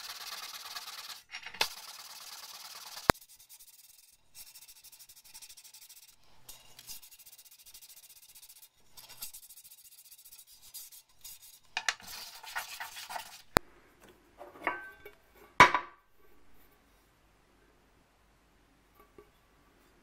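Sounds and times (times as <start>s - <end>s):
sandpaper rubbing on steel: 0.0s - 13.5s.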